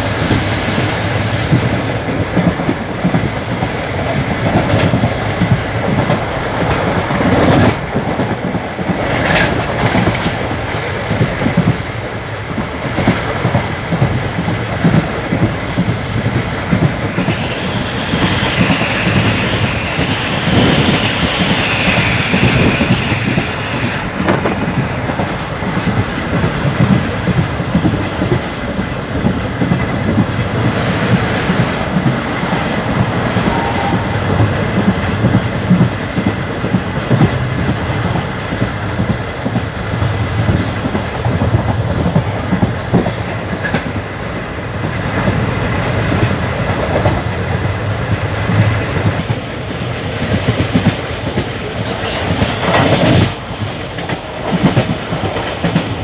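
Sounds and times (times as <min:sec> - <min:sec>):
train wheels clattering: 0:00.0 - 0:56.0
high-pitched rushing noise: 0:16.4 - 0:25.5, 0:31.5 - 0:35.9.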